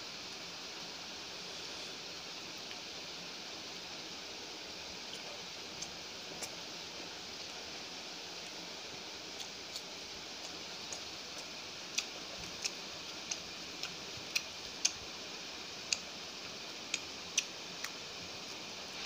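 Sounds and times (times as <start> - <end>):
steady hiss: 0.0 - 19.0
chewing and mouth smacks: 9.4 - 15.0, 16.9 - 18.6.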